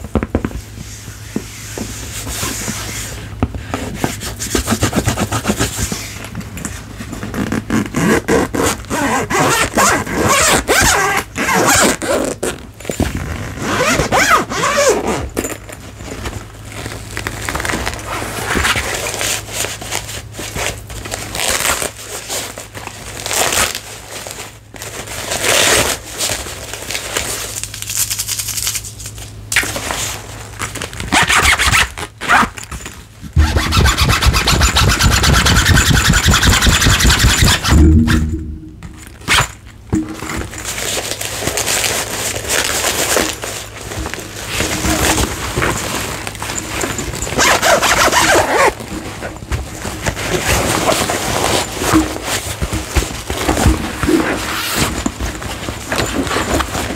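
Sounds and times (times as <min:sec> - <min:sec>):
packaging scraping and rustling: 0:00.0 - 0:38.0, 0:38.8 - 0:56.9
fast continuous scratching: 0:33.4 - 0:38.7.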